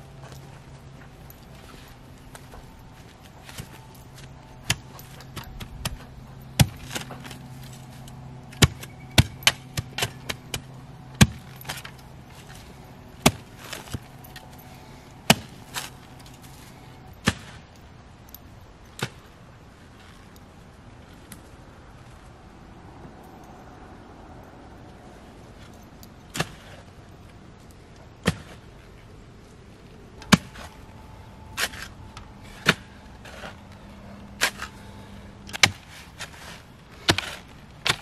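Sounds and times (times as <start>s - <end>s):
post hole digger striking ground: 1.6s - 17.6s, 30.2s - 30.9s, 31.5s - 38.0s.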